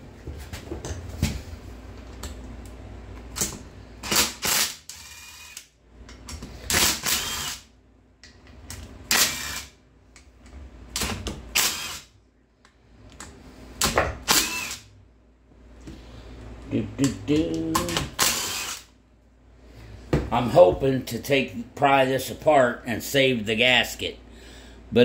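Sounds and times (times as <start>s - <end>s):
cordless driver whirring: 4.0s - 5.6s, 6.7s - 7.6s, 14.3s - 14.9s, 18.0s - 18.9s.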